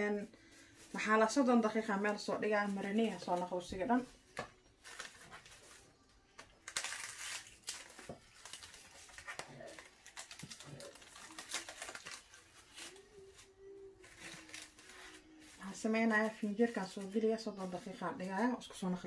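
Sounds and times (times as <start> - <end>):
cling film crinkling: 4.8 - 18.5.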